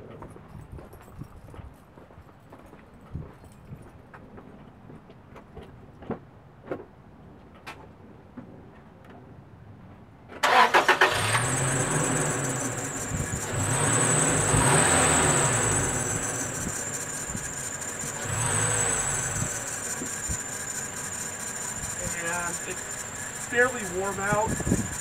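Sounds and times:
engine fast idle: 10.4s - 25.0s
engine starter cranking: 10.4s - 25.0s
high-pitched belt squeal: 10.5s - 25.0s.

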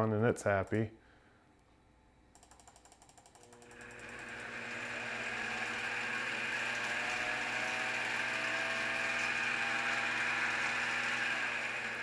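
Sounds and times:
mill spindle whirring: 3.1s - 12.0s.

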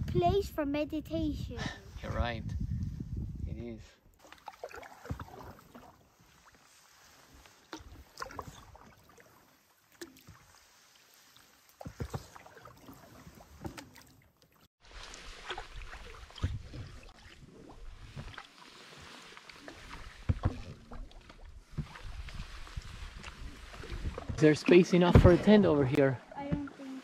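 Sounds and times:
paddle dips and splashes: 4.2s - 27.0s
paddle knocking: 11.7s - 14.1s, 15.0s - 27.0s.

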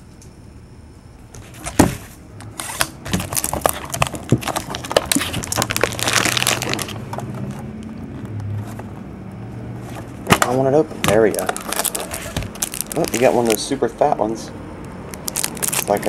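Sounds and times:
shrink-wrap crinkling and tearing: 2.6s - 8.3s, 10.3s - 13.8s, 15.1s - 16.0s.

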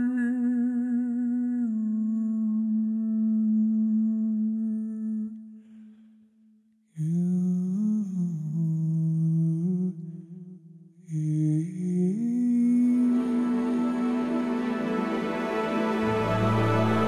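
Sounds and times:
wordless humming music: 11.2s - 17.0s.

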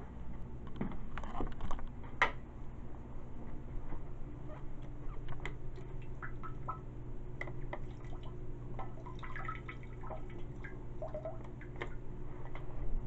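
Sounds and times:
water dribbling into toilet bowl: 5.5s - 12.0s.

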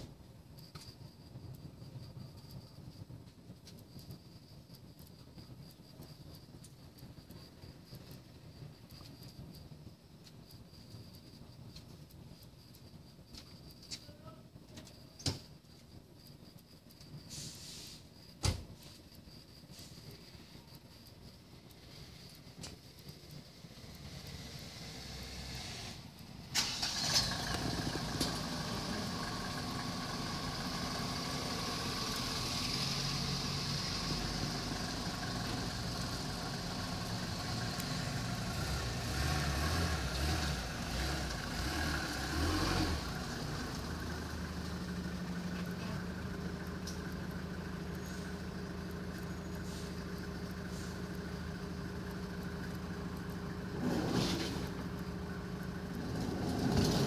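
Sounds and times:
engine humming: 19.7s - 57.0s.

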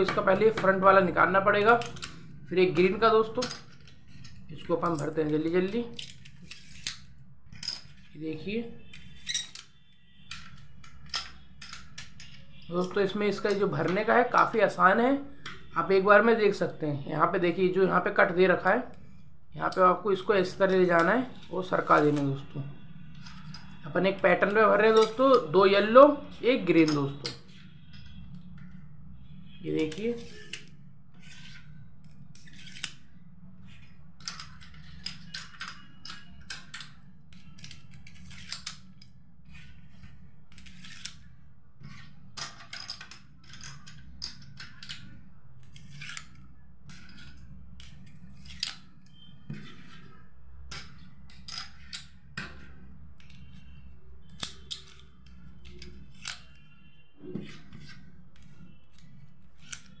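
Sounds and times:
plastic domino tiles clicking: 1.6s - 2.3s, 33.7s - 41.2s.

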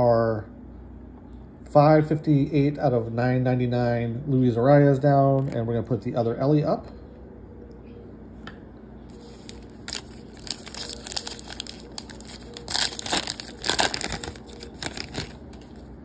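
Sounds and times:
plastic wrapper crinkling and tearing: 9.1s - 15.9s.

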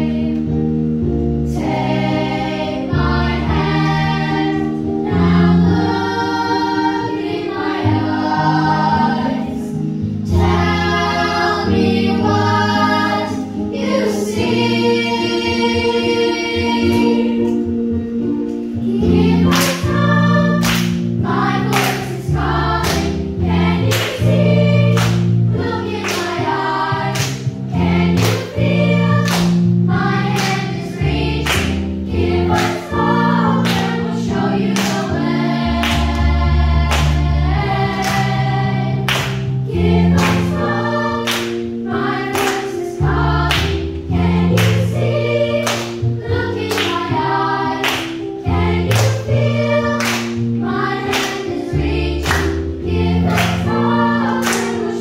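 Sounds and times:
children's choir singing: 0.0s - 0.7s, 1.5s - 17.8s, 18.6s - 55.0s
instrumental accompaniment: 0.0s - 55.0s
hand claps: 19.5s - 19.8s, 20.6s - 21.0s, 21.7s - 22.2s, 23.8s - 24.2s, 24.9s - 25.3s, 26.0s - 26.4s, 27.1s - 27.5s, 28.1s - 28.6s, 29.2s - 29.6s, 31.4s - 31.8s, 34.8s - 35.1s, 36.9s - 37.2s, 39.1s - 39.5s, 40.2s - 40.5s, 41.2s - 41.6s, 42.3s - 42.7s, 44.6s - 44.9s, 45.6s - 46.0s, 46.7s - 47.1s, 47.8s - 48.2s, 48.9s - 49.3s, 50.0s - 50.4s, 51.1s - 51.5s, 52.2s - 52.6s, 53.3s - 53.7s, 54.4s - 54.9s.

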